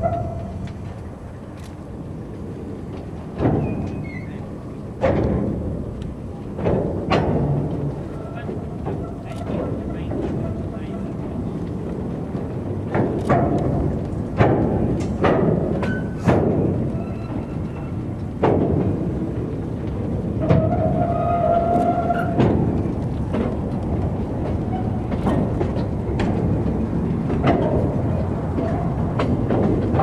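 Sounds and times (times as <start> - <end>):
wheel squeal: 0.0 - 0.7, 3.5 - 4.6, 7.8 - 11.4, 15.8 - 18.2, 20.4 - 22.7
train wagons rumbling: 0.0 - 30.0
wagon couplings clanking: 3.0 - 30.0.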